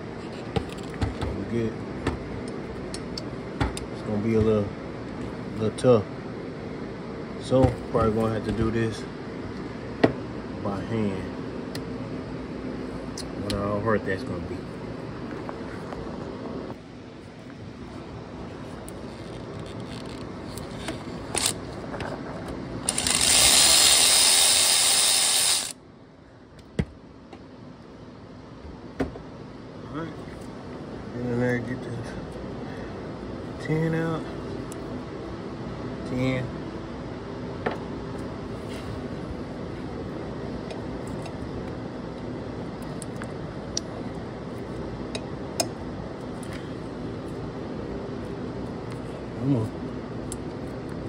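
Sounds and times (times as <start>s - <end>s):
steady background hum: 0.0s - 51.0s.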